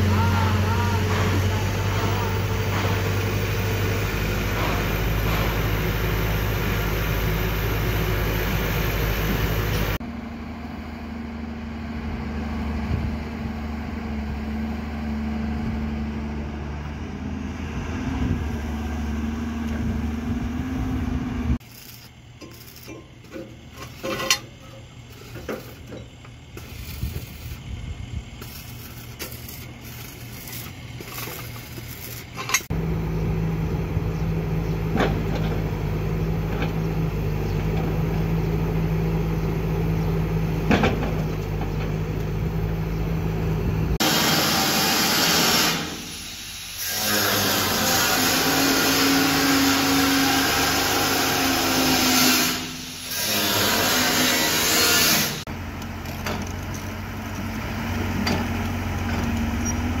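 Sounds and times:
excavator diesel engine running: 0:00.0 - 0:44.0, 0:55.5 - 1:00.0
excavator engine whine: 0:00.0 - 0:44.0, 0:55.4 - 1:00.0
metal clinks and knocks: 0:22.4 - 0:26.4.

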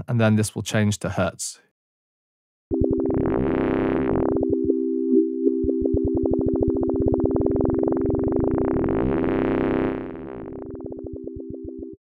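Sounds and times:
pulsing synthesizer tone: 0:02.7 - 0:12.0.

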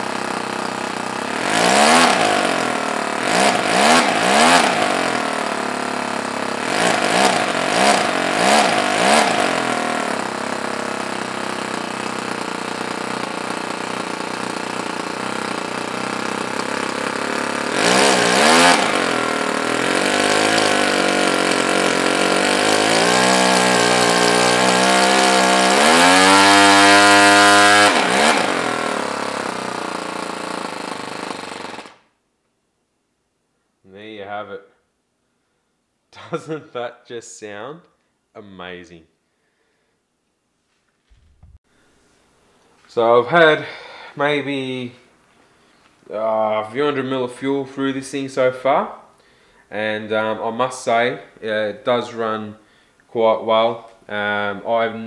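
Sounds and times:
model engine revving: 0:00.0 - 0:32.0.

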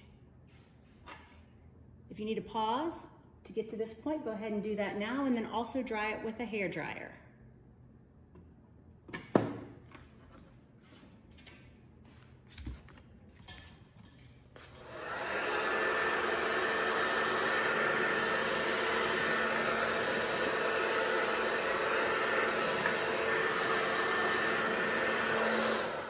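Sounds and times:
hair dryer blowing: 0:14.6 - 0:26.0.

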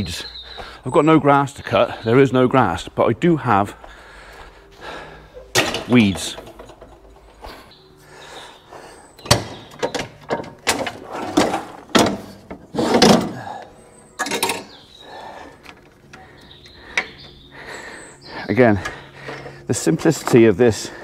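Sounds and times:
metal clanks and knocks: 0:05.5 - 0:07.6, 0:09.2 - 0:13.6, 0:14.2 - 0:14.8.

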